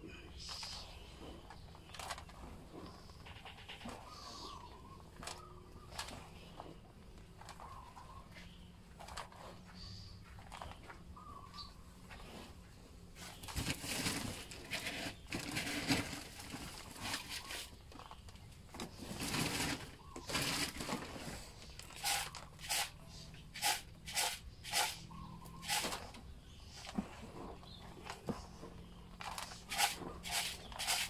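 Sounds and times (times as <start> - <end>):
hands mixing damp mash: 13.2 - 26.0, 26.7 - 31.0.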